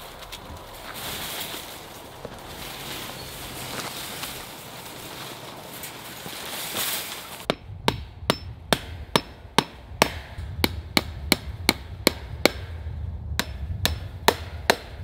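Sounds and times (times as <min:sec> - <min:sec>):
hammer striking wooden post: 0:07.5 - 0:12.7, 0:13.4 - 0:15.0.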